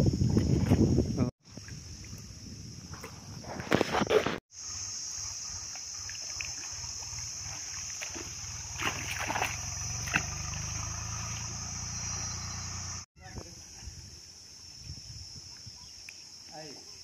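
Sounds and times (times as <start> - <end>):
steady high-pitched hiss: 4.6 - 8.6, 11.3 - 17.0
fish splashing in water: 5.8 - 12.8.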